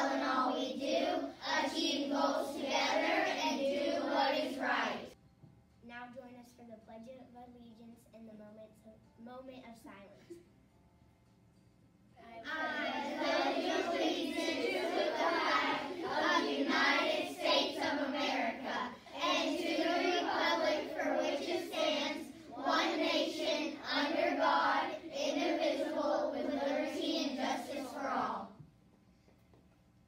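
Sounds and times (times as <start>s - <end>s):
children reciting in unison: 0.0s - 5.2s, 12.4s - 28.6s.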